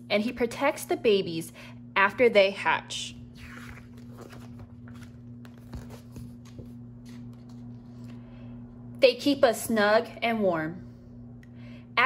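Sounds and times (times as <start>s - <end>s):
page turning rustle: 3.4s - 8.2s.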